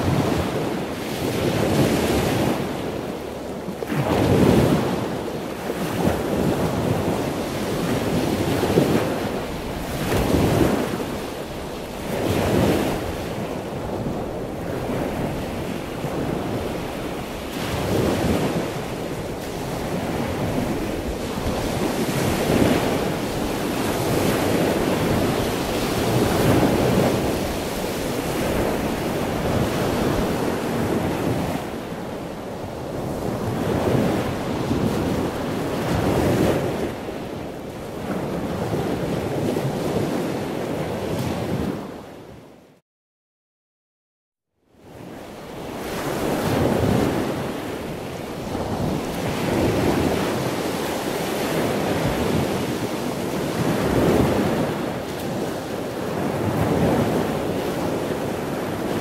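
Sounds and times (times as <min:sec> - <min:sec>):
ocean waves washing in: 0:00.0 - 0:42.7.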